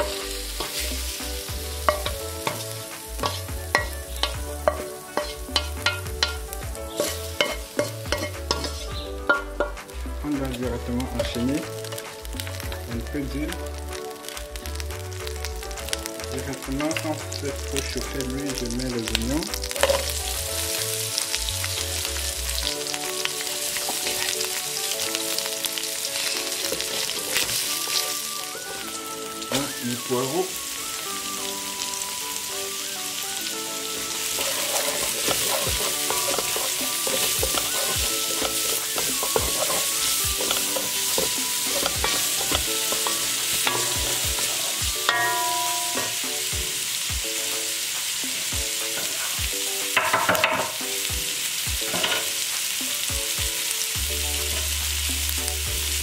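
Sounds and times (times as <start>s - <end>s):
onions sizzling in oil: 0.0s - 56.0s
wooden spoon scraping pan: 3.2s - 9.4s, 34.3s - 44.8s.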